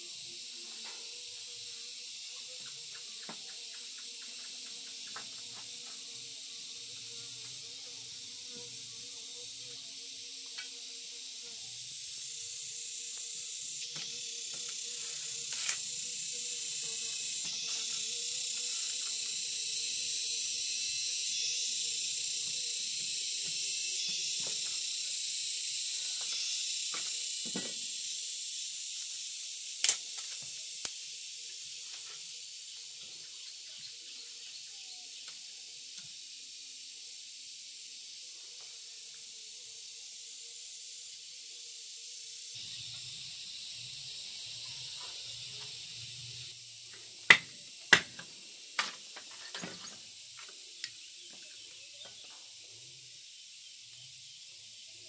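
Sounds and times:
high-pitched hiss: 0:00.0 - 0:55.0.

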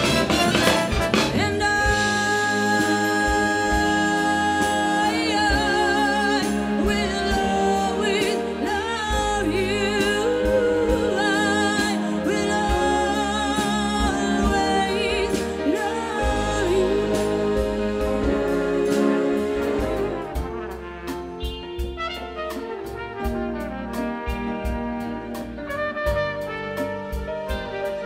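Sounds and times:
woman singing with vibrato: 0:01.2 - 0:20.4.

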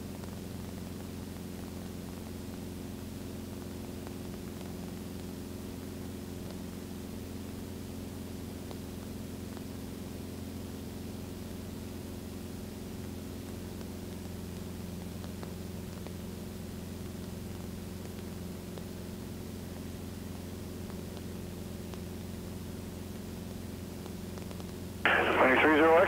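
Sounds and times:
aircraft engine and propeller drone: 0:25.1 - 0:26.0.

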